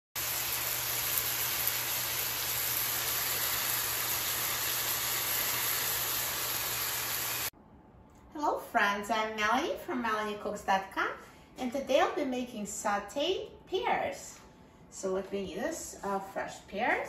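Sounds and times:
fruit frying in hot oil: 0.2 - 7.5.

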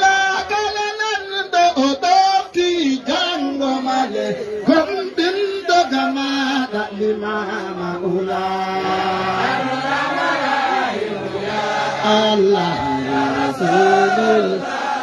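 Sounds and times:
men chanting devotional chant: 0.0 - 15.0.

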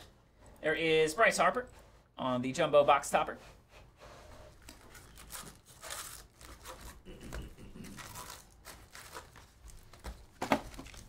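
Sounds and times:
foil packs crinkling: 4.6 - 7.0, 7.8 - 11.0.

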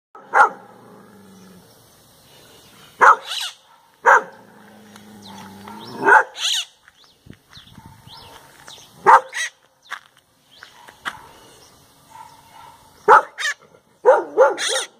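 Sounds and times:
dog barking: 0.2 - 0.7, 3.0 - 4.4, 5.2 - 6.4, 9.0 - 9.5, 10.7 - 11.3, 12.1 - 14.9
parakeet squawking: 3.0 - 3.6, 6.1 - 6.8, 9.1 - 9.6, 13.1 - 13.6, 14.6 - 14.9
high bird chirps: 3.0 - 3.7.

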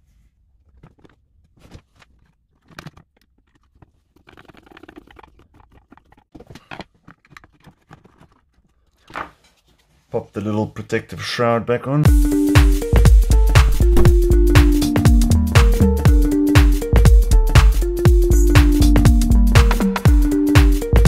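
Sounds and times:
loud knock: 13.6 - 14.4.

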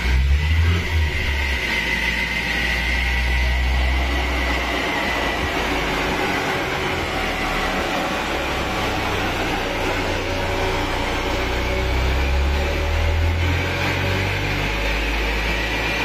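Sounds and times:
car engine running: 0.0 - 16.0
cooling fan rushing: 0.0 - 16.0
high whine: 0.0 - 16.0.

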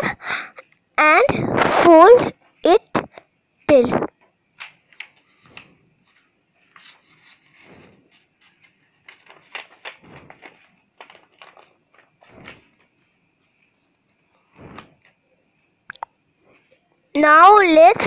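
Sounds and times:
paper rustling and swishing: 5.0 - 15.2.

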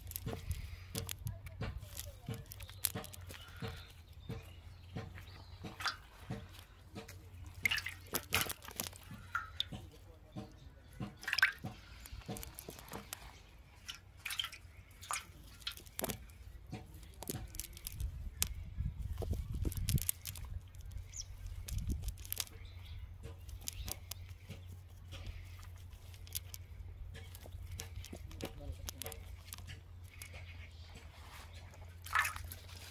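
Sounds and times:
fishing net rustling: 0.0 - 10.0, 11.1 - 32.9
water drips and plops: 1.9 - 10.0, 11.0 - 22.6, 31.6 - 32.9.

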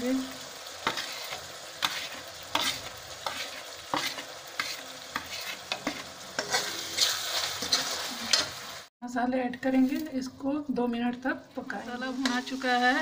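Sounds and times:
masala sizzling in hot oil: 0.0 - 13.0
metal ladle scraping pan: 0.8 - 8.7.

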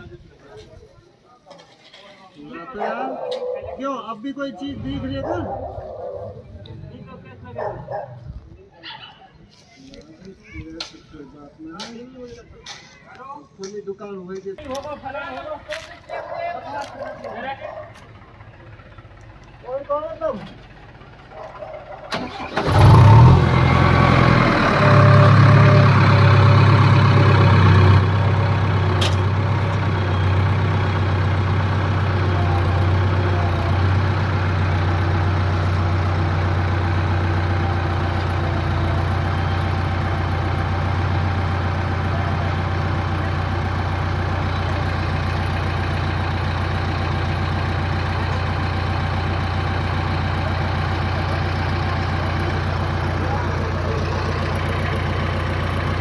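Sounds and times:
diesel engine running: 4.6 - 8.5, 14.7 - 56.0.

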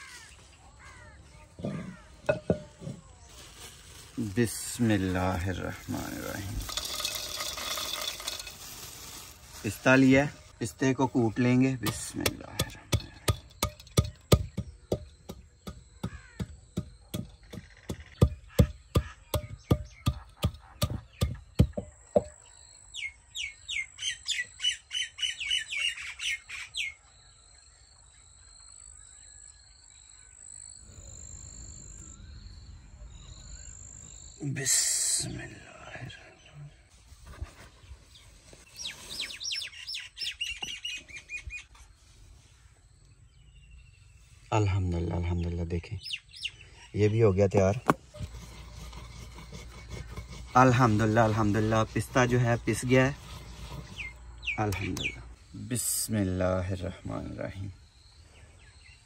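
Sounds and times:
songbird singing: 0.0 - 59.0
wooden pestle pounding nuts: 11.9 - 22.4, 47.8 - 54.1.

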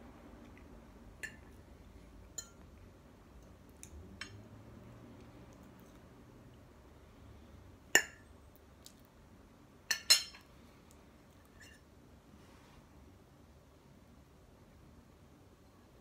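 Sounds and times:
fork clinking on ceramic plate: 9.9 - 10.4.

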